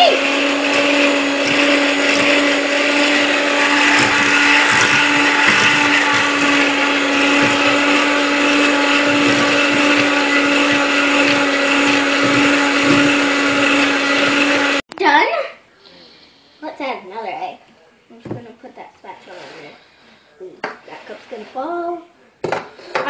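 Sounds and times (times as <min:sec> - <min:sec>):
beaters whisking in metal bowl: 0:00.0 - 0:14.8
electric hand mixer whining: 0:00.0 - 0:14.8.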